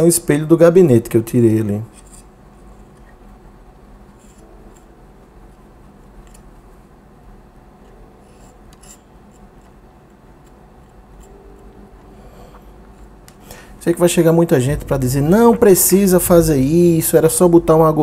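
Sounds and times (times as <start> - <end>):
low steady hum: 0.0 - 18.0
metal scraping thermal paste: 8.2 - 9.1.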